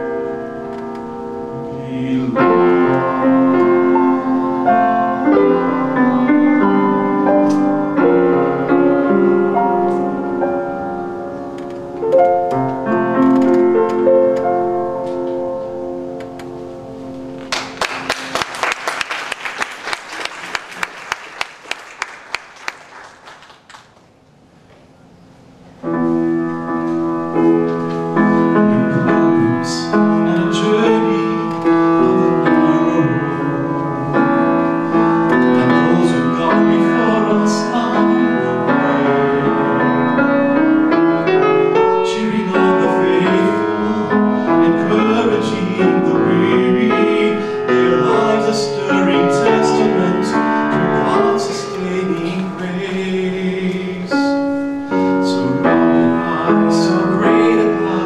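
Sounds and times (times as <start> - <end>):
grand piano playing: 0.0 - 58.0
man singing: 1.5 - 3.9, 28.2 - 58.0.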